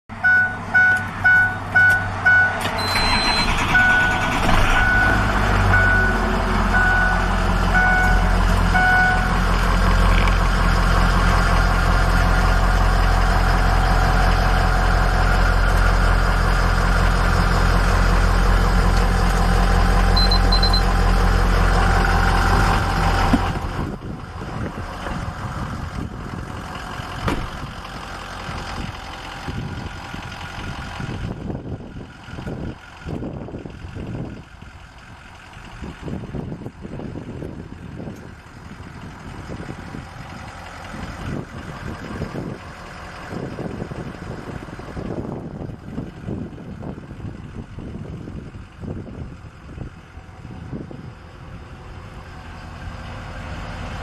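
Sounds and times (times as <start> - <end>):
diesel engine idling: 0.1 - 54.0
dashboard warning chime beeping: 0.2 - 9.3, 20.2 - 21.0.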